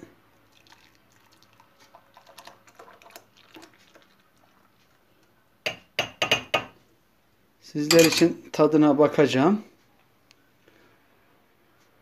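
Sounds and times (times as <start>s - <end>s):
liquid dripping: 0.4s - 5.3s
metal pot clanking: 7.9s - 8.3s.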